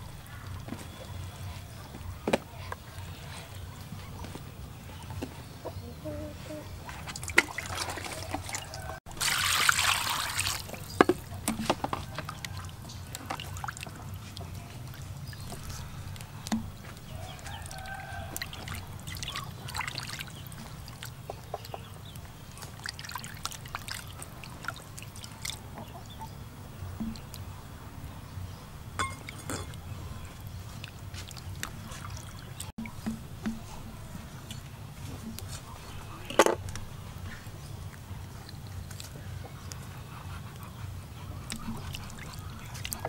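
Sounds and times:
hands washing chicken in water: 6.8 - 27.5, 29.2 - 39.8, 41.3 - 43.0
water pouring into a tub: 7.1 - 14.0, 17.2 - 21.1, 22.5 - 25.6.

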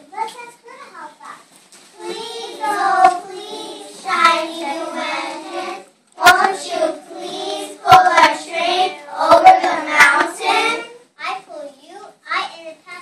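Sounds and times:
children singing: 2.0 - 11.0
sharp knocks: 9.3 - 10.4.

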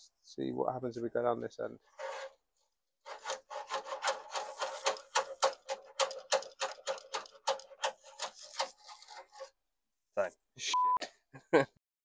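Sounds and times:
cable rasping through metal tube: 1.9 - 2.4, 3.0 - 9.6.

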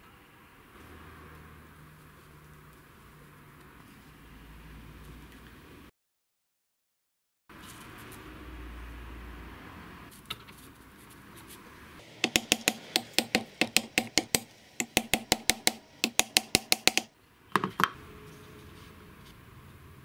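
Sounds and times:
small hammer tapping metal: 12.0 - 17.9.

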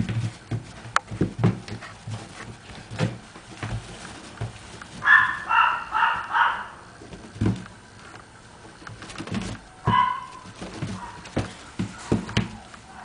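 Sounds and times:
soft thumps and rustles: 0.0 - 5.5, 7.0 - 8.0, 8.6 - 12.8
puppy yipping: 5.0 - 6.8, 9.8 - 10.4.

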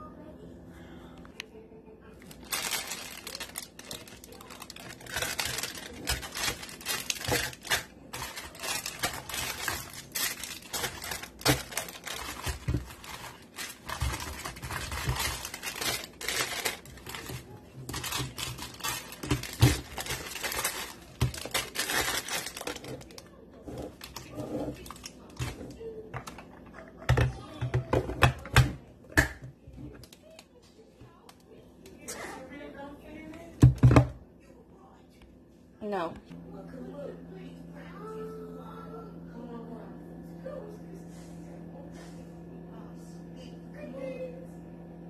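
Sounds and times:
plastic wrappers crinkling: 2.2 - 26.5.

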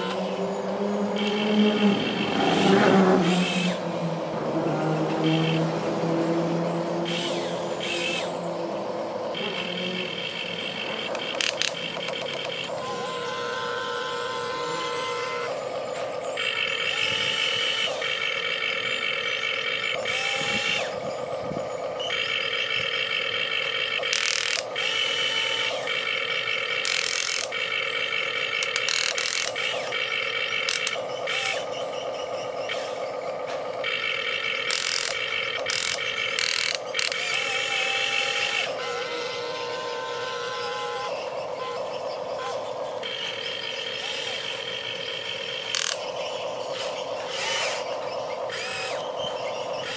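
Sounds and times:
electric motor and gear whine: 0.0 - 49.9
sharp clicks: 9.3 - 12.8, 22.0 - 31.8, 32.6 - 38.8, 43.0 - 49.9.

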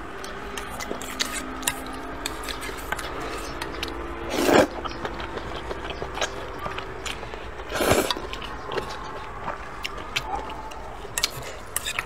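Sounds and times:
chewing: 0.2 - 12.0
noodles slurped: 0.6 - 9.9.

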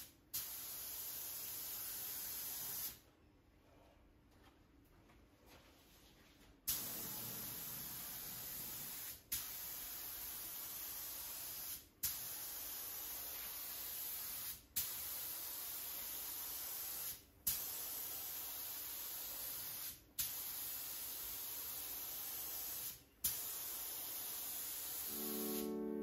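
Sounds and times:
spray gun puff: 6.7 - 14.9, 21.4 - 25.8
spray gun hissing: 17.8 - 26.0.

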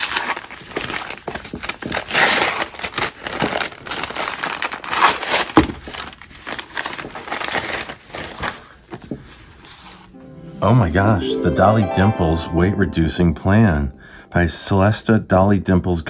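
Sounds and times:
paper tearing and crumpling: 0.0 - 8.8.

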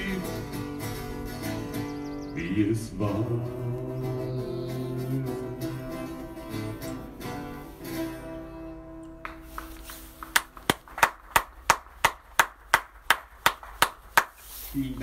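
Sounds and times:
acoustic guitar strumming: 0.0 - 10.9
hand clapping: 9.1 - 14.5.

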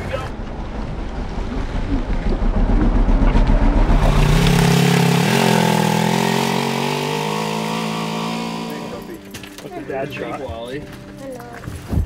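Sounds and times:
utility vehicle engine pulling away: 0.3 - 9.3.

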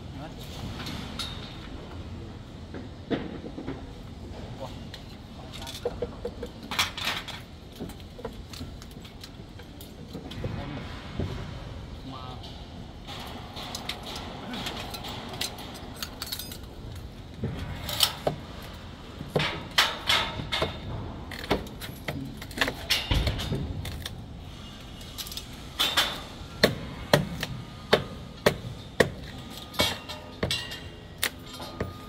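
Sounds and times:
metallic clinks and knocks: 13.1 - 24.0.

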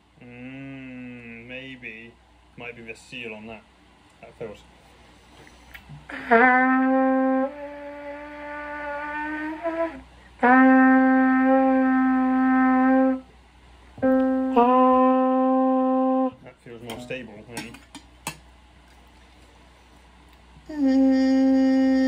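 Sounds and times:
trumpet long held notes: 6.1 - 13.3, 14.0 - 16.4, 20.7 - 22.0.

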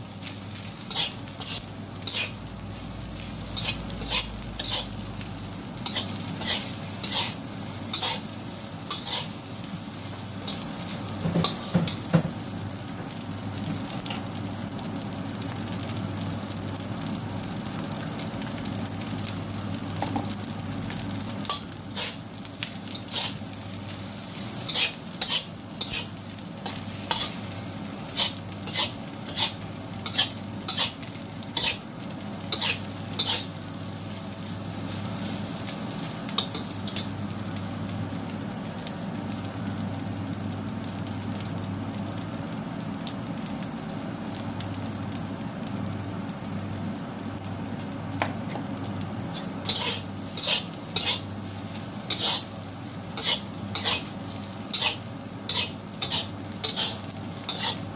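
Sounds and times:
rice sizzling in a wok: 0.0 - 57.9
spatula scraping a wok: 0.2 - 5.1, 5.8 - 9.6, 10.4 - 12.0, 21.4 - 22.2, 22.8 - 33.6, 36.4 - 37.1, 49.3 - 57.9.

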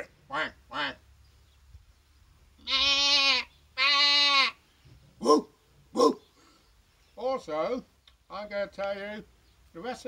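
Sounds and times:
man imitating animal bleat: 2.6 - 4.6.

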